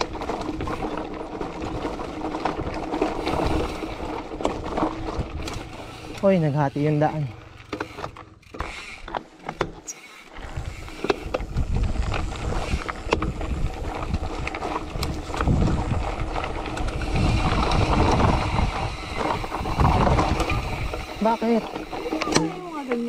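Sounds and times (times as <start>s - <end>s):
bike rattling over bumps: 0.0s - 23.0s
tyres crunching over stones: 0.0s - 23.0s
wind on microphone: 10.4s - 21.2s.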